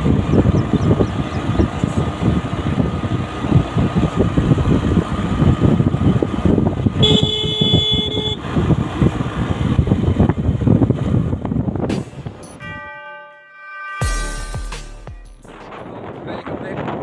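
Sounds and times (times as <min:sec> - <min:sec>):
motorcycle engine running: 0:00.0 - 0:11.9
wind buffeting microphone: 0:00.0 - 0:12.4, 0:15.6 - 0:17.0
vehicle horn: 0:07.0 - 0:08.5, 0:12.5 - 0:14.4.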